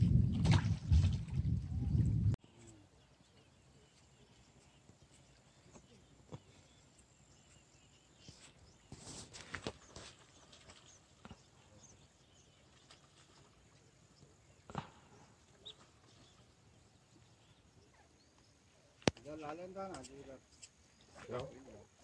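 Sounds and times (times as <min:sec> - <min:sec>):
faint bird chirps: 0:01.8 - 0:21.8.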